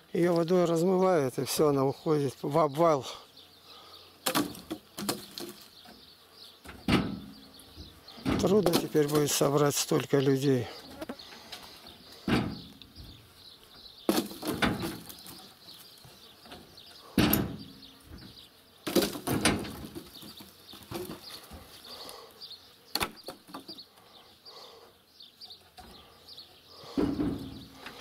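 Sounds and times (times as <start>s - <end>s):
wooden poles clattering: 4.2s - 6.0s, 6.6s - 13.2s, 14.0s - 21.8s, 23.0s - 23.8s, 26.8s - 28.0s
quiet wooden knocks: 26.8s - 28.0s.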